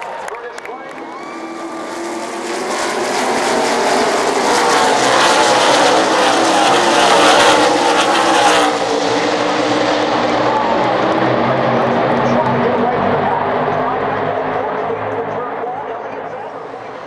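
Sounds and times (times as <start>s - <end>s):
race car engines passing: 0.0s - 17.0s.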